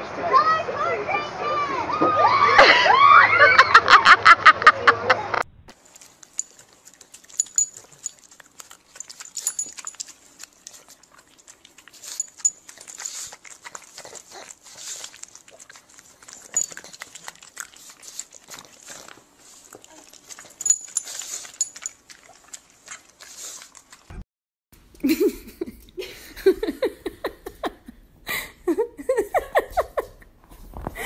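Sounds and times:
dog snuffling and snorting: 0:05.8 - 0:24.1
metal collar tag clinking: 0:07.3 - 0:08.2, 0:09.0 - 0:10.1, 0:16.5 - 0:16.8, 0:20.6 - 0:22.0.

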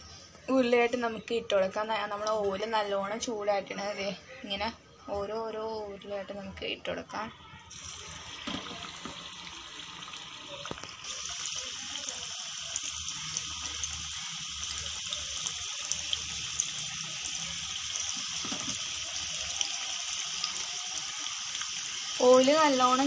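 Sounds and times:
food deep-frying in hot oil: 0:07.7 - 0:23.0.

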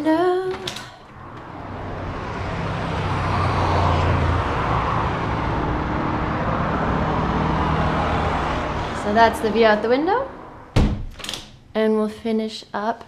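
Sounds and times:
road traffic passing: 0:00.0 - 0:11.7.

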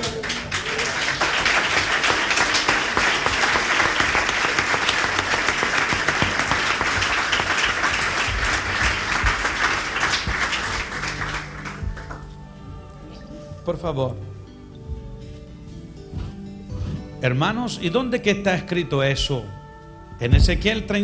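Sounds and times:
crowd applauding: 0:00.0 - 0:12.4.

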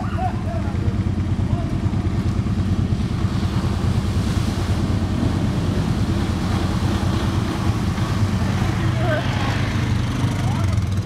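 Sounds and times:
atv engine rumbling: 0:00.0 - 0:11.0
continuous rushing noise: 0:00.0 - 0:11.0.

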